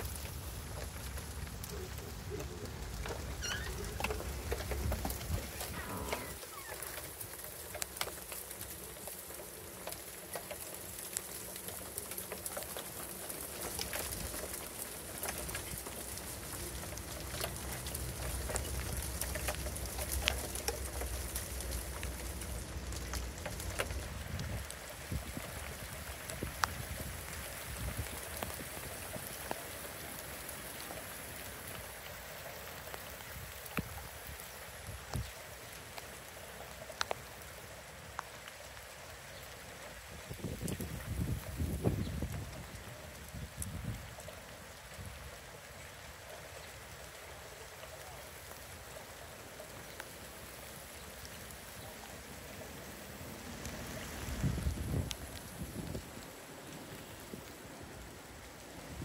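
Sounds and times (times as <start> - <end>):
ice pellets pattering on leaves: 0.0 - 45.2, 46.1 - 59.0.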